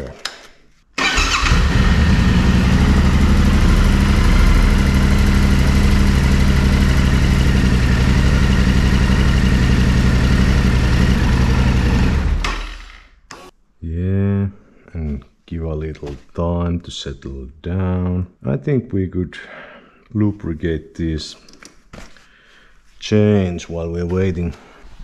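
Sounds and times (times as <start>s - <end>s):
motorcycle engine starting and idling: 1.0s - 13.2s.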